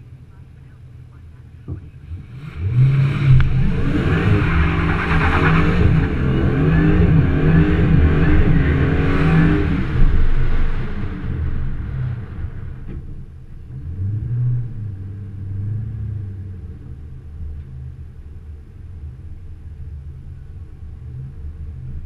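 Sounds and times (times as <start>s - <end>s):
engine revving at high revs: 2.1s - 12.8s.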